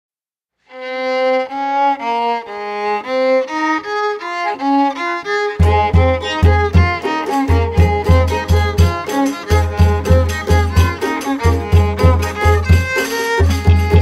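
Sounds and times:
violin melody: 0:00.6 - 0:14.0
heavy low beat: 0:05.5 - 0:14.0.

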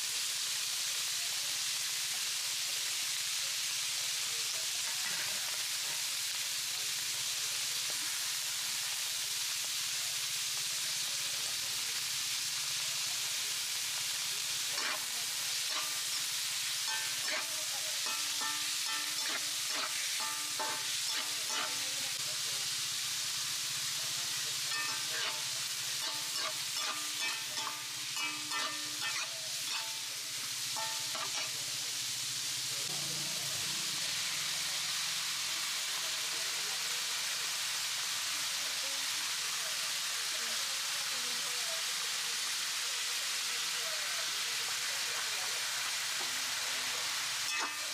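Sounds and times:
seafood sizzling in a wok: 0:00.0 - 0:47.9
metal spatula scraping a pan: 0:14.7 - 0:22.0, 0:24.7 - 0:30.1, 0:30.8 - 0:31.6, 0:47.4 - 0:47.9.

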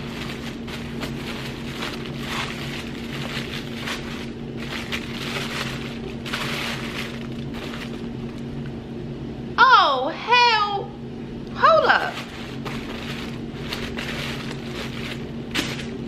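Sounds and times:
tissue paper rustling: 0:00.0 - 0:08.4, 0:12.0 - 0:16.0
low hum: 0:00.0 - 0:16.0.

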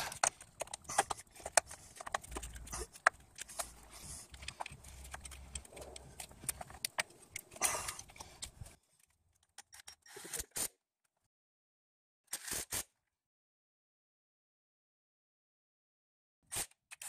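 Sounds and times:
clicks and knocks of parts handled: 0:00.0 - 0:10.6.

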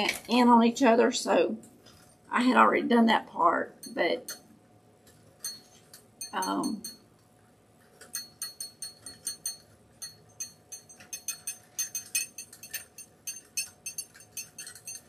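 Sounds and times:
chicken wire clinking on metal: 0:08.0 - 0:15.0.

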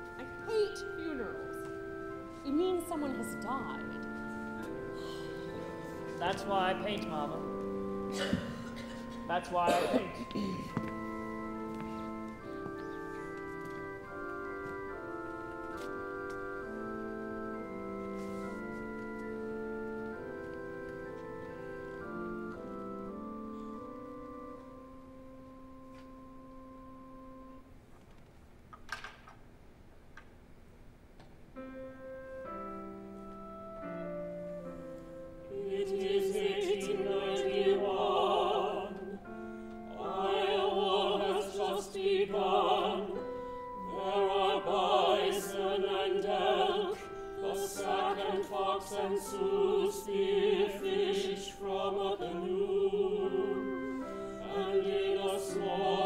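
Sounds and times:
operatic singing with wide vibrato: 0:35.1 - 0:56.0.

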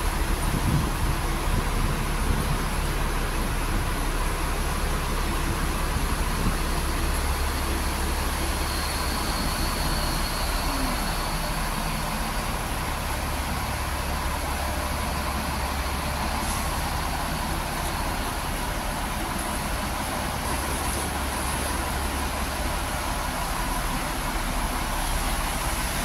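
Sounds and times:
buses idling: 0:00.0 - 0:26.0.

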